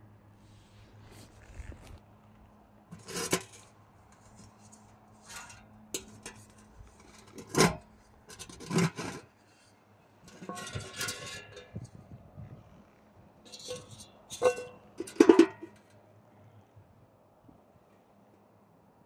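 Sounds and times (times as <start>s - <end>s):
metal cans scraping and clanking: 2.9s - 12.0s, 13.5s - 15.9s.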